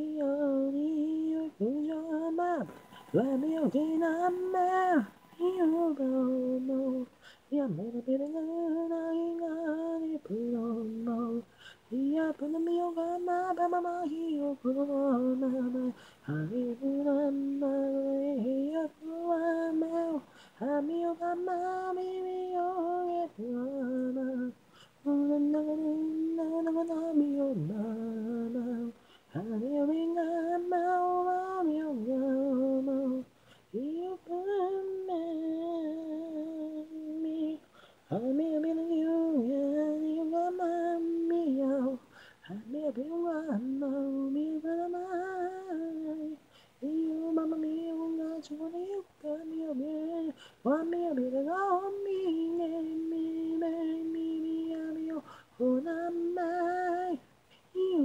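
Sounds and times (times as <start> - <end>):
man singing: 0.0 - 58.0.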